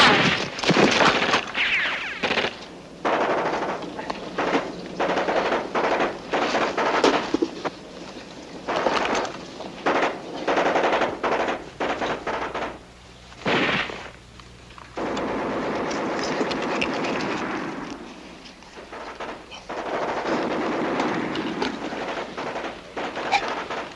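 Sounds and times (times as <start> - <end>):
machine-gun fire: 0.0 - 7.8, 8.6 - 14.2, 15.0 - 23.9
steady continuous noise: 0.0 - 23.9.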